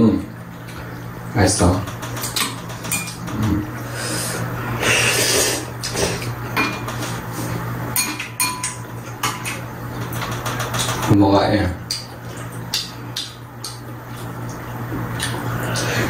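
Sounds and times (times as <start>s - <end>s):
noodle slurping: 3.8s - 6.3s.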